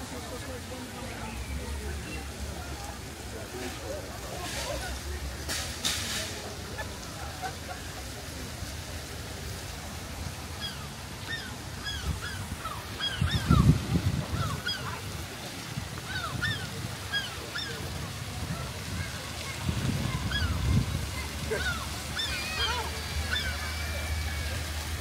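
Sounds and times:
flock of birds calling: 10.5 - 15.1, 16.0 - 18.0, 20.2 - 20.6, 21.4 - 25.0.

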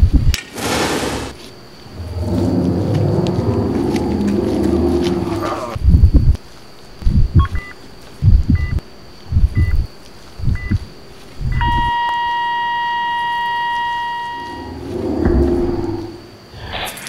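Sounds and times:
low rush of noise: 0.6 - 6.4, 14.1 - 16.4
heartbeat thumps: 5.7 - 6.4, 7.0 - 11.9
heart monitor beep: 7.3 - 8.8, 9.5 - 9.8, 10.5 - 10.9, 11.5 - 14.8
monitor flatline tone: 11.6 - 16.2.

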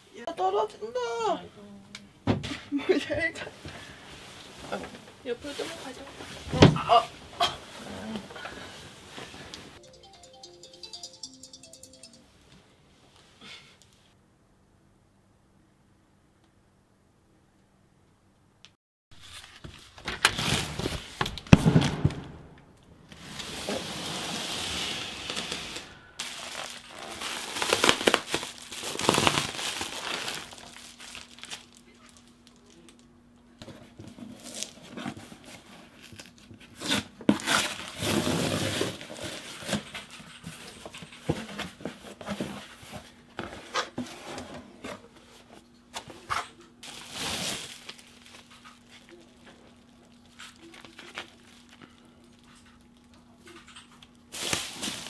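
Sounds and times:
packaging crinkling and tearing: 19.2 - 22.2, 23.2 - 33.1, 34.4 - 35.0, 35.8 - 39.9, 46.8 - 53.3, 54.0 - 55.0.

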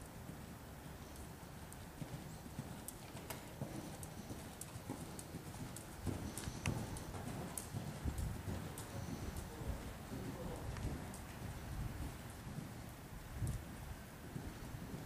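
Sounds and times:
horse hooves cantering on sand: 0.0 - 15.0.

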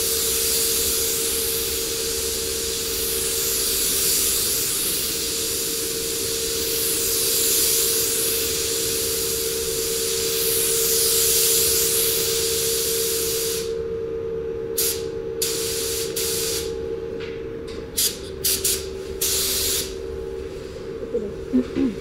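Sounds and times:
spray gun air hiss: 0.0 - 13.8, 14.8 - 16.8, 18.0 - 20.0
steady hum: 0.0 - 22.0.

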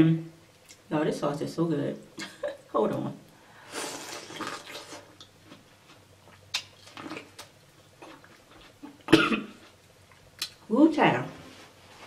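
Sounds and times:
chewing and mouth smacks: 4.2 - 10.6.

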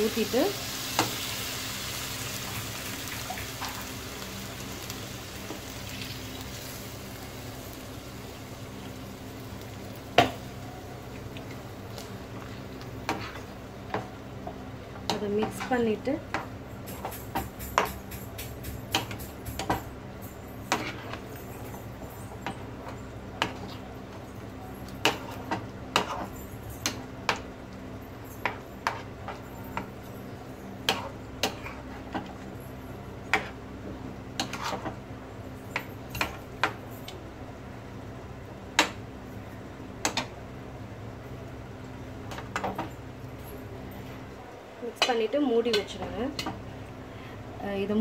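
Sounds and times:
steady low hum: 0.0 - 48.0
spatula scraping a pan: 34.4 - 34.9.

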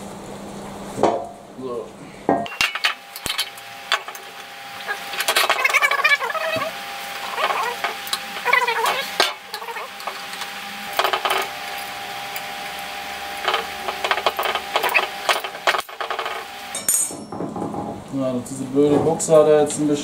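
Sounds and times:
steel parts clinking and scraping: 2.5 - 12.5, 13.4 - 17.3.

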